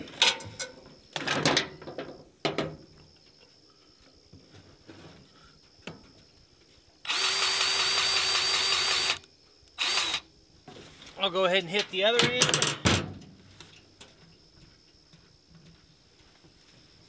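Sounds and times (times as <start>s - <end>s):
grease gun motor whining: 7.1s - 9.2s, 9.8s - 10.2s.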